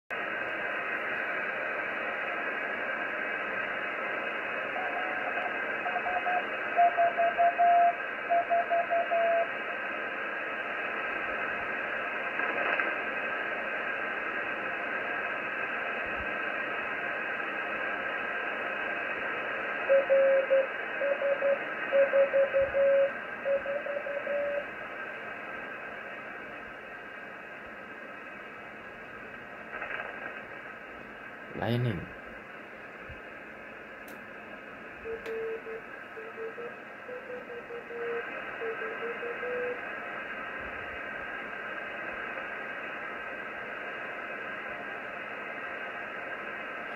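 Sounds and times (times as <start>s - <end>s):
receiver hiss: 0.1s - 46.9s.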